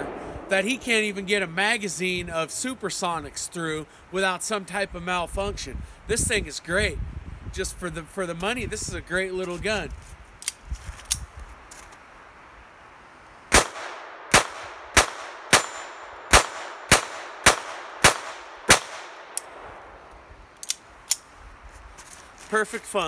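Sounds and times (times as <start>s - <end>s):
pistol shots: 13.5s - 19.9s.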